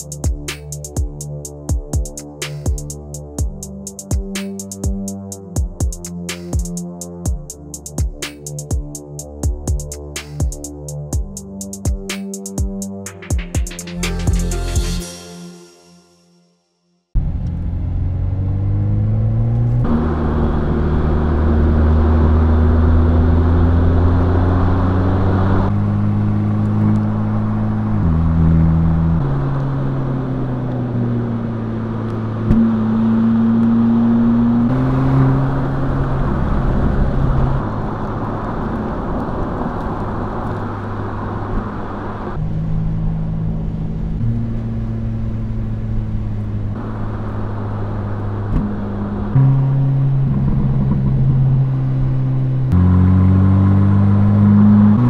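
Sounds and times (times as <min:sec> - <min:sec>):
car engine accelerating: 0:17.2 - 0:55.0.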